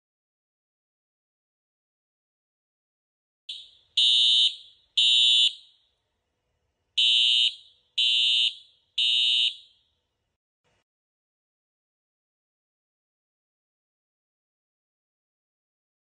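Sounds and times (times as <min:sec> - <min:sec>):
fire alarm horn blasts: 0:03.5 - 0:05.8, 0:07.0 - 0:09.8.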